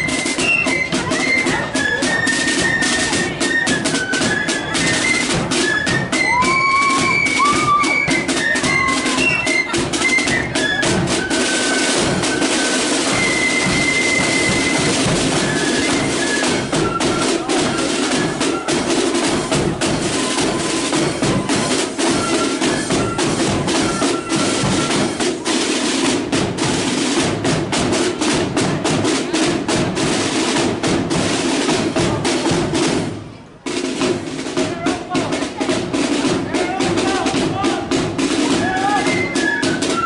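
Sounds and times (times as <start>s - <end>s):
high flute notes: 0.0s - 25.4s, 36.6s - 40.0s
snare drums beating: 0.0s - 40.0s.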